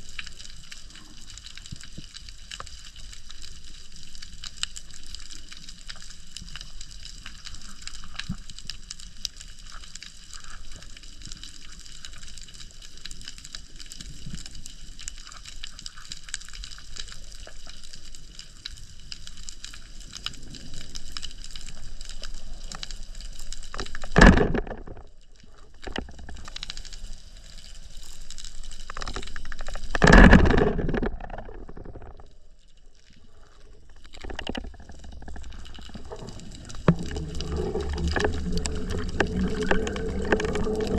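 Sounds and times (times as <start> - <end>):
underwater crackling hiss: 0.0 - 24.2, 33.2 - 40.9
water rushing past camera: 34.6 - 40.9.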